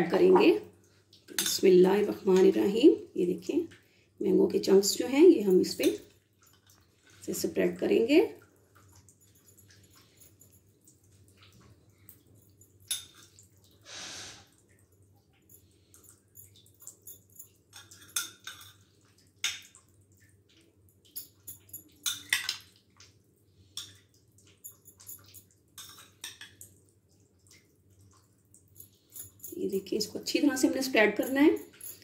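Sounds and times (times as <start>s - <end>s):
soft wet fruit sounds: 4.8s - 32.0s
metal spoon clicking and scraping: 24.6s - 26.7s.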